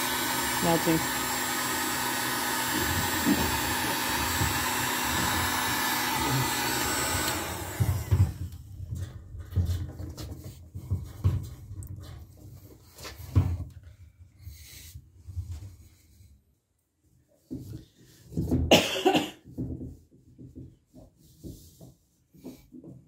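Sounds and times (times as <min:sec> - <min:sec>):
heat gun blowing hot air: 0:00.0 - 0:08.6
pipe bumping and knocking: 0:01.7 - 0:13.8.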